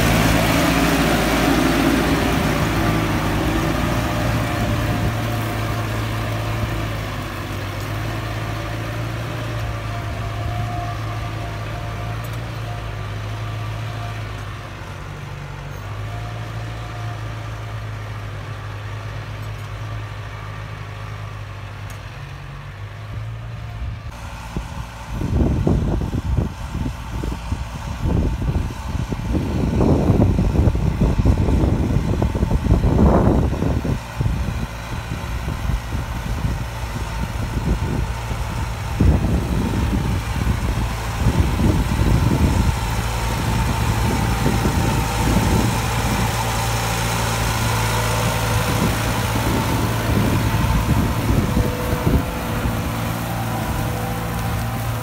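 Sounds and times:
loud irregular rumbling buffets: 0:00.0 - 0:13.9, 0:23.8 - 0:55.0
tractor diesel engine humming: 0:00.0 - 0:55.0.

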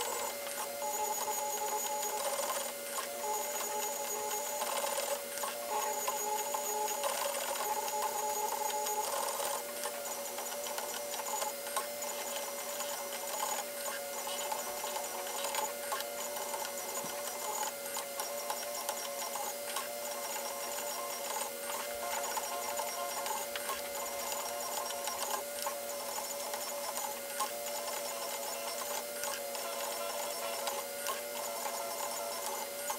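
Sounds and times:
stepper motors whining: 0:00.0 - 0:32.9.

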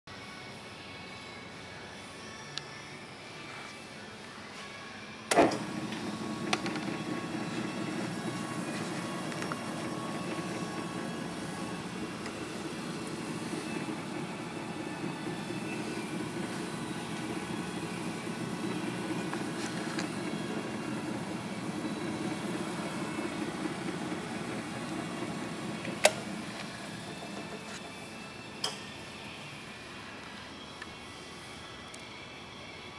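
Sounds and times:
drill press motor humming: 0:05.3 - 0:28.5.

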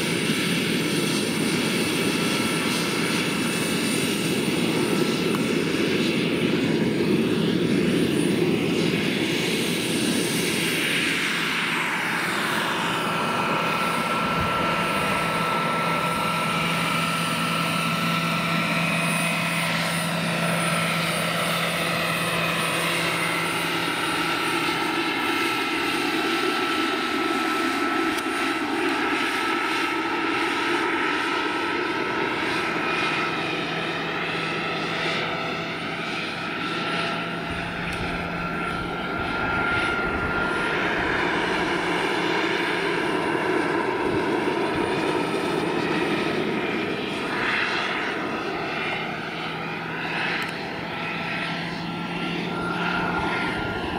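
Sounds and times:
helicopter rotor noise: 0:00.0 - 0:53.9
turbine whine: 0:00.0 - 0:53.9.

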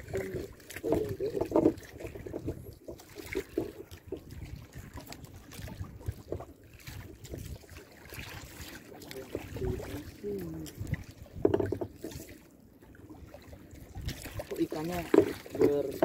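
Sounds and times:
wind on microphone: 0:00.0 - 0:08.6
water lapping against boat hull: 0:00.0 - 0:16.0.

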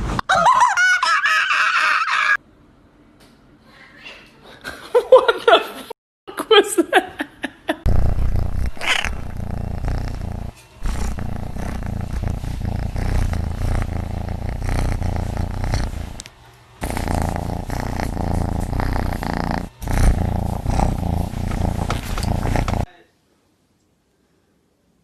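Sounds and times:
cat purring: 0:07.8 - 0:22.9.

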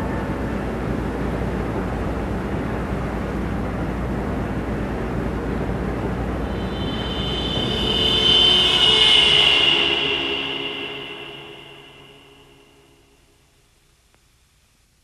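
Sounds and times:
high falling whine: 0:06.2 - 0:12.9.

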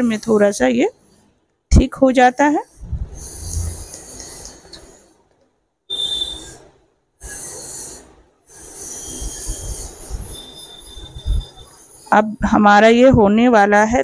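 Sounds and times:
thin high squeal: 0:03.2 - 0:05.0, 0:05.9 - 0:12.6.

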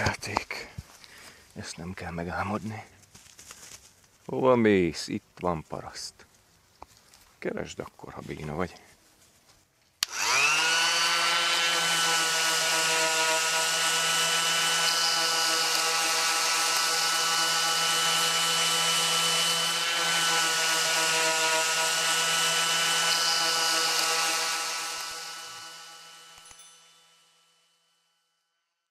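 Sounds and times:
electric sander motor whine: 0:10.0 - 0:27.7.

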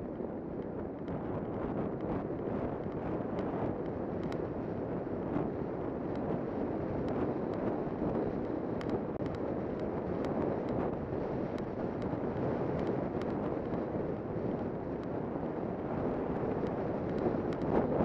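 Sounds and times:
wind roaring over microphone: 0:00.0 - 0:18.0
faint sharp clicks: 0:02.8 - 0:04.5, 0:07.0 - 0:10.8, 0:12.7 - 0:13.8, 0:15.0 - 0:15.2, 0:16.6 - 0:17.7.

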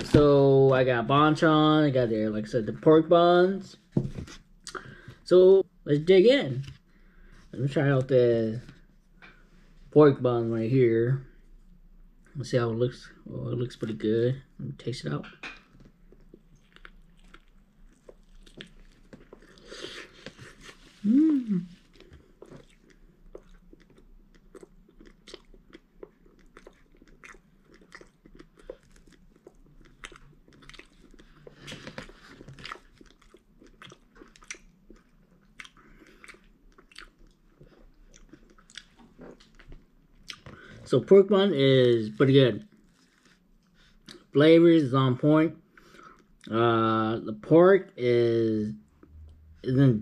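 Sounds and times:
biting and chewing food: 0:15.6 - 0:21.0, 0:21.8 - 0:40.7.

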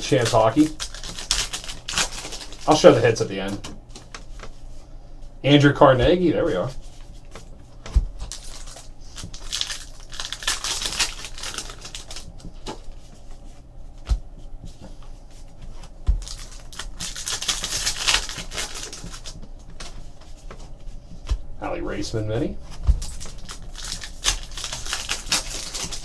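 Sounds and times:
cards rustling: 0:00.0 - 0:04.6, 0:06.6 - 0:13.2, 0:15.7 - 0:21.4, 0:22.6 - 0:26.0.

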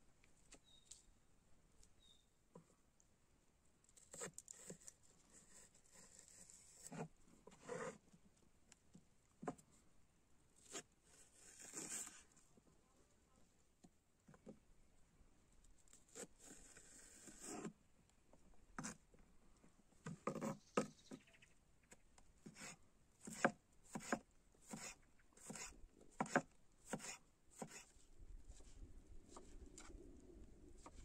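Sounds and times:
knife chopping on wooden board: 0:23.3 - 0:27.8.

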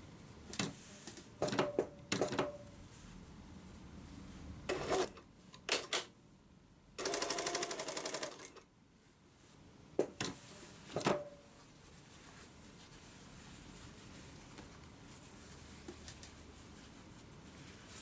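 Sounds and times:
sewing machine stitching: 0:04.7 - 0:05.9, 0:07.0 - 0:08.6.

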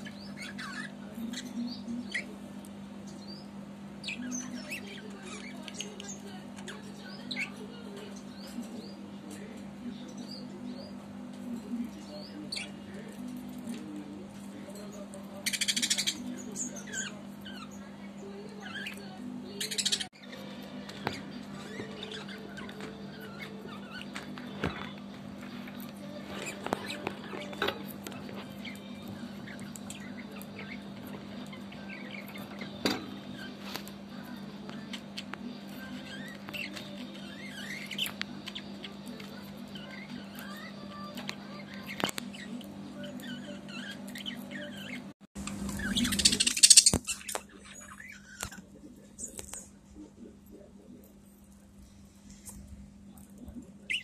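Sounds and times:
budgerigars chirping and warbling: 0:00.0 - 0:49.7, 0:53.4 - 0:54.0
steady low hum: 0:00.0 - 0:54.0
budgerigars chirping: 0:15.4 - 0:18.0, 0:18.6 - 0:24.2, 0:45.7 - 0:48.6.

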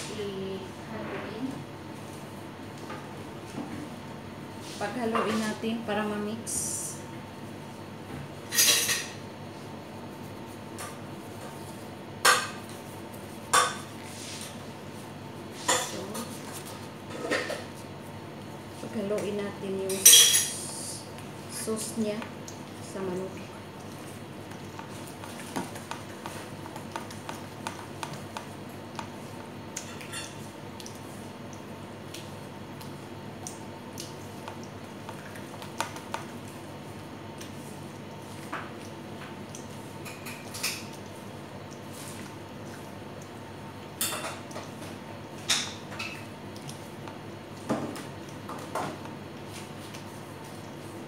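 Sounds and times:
faint kitchenware clink: 0:19.9 - 0:20.7
marinade squishing in bowl: 0:21.2 - 0:51.0.

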